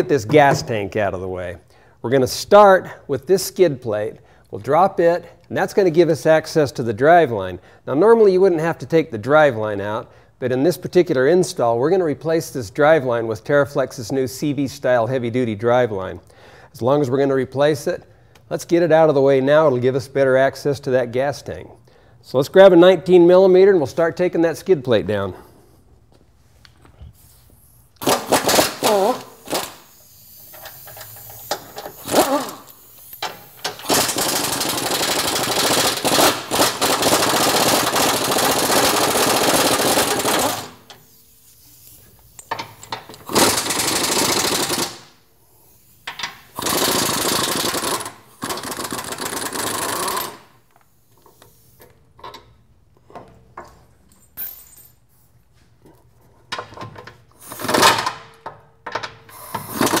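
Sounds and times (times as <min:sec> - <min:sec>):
pneumatic impact wrench hammering: 0:28.0 - 0:52.5, 0:56.5 - 1:00.0.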